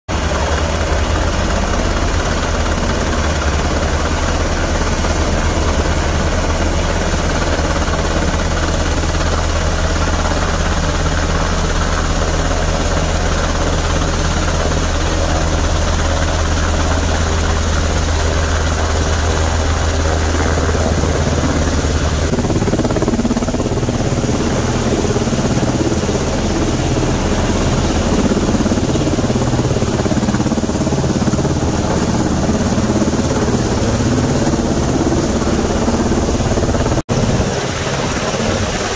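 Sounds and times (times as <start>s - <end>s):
helicopter rotor beating: 0.1s - 38.9s
turbine engine noise: 0.1s - 38.9s.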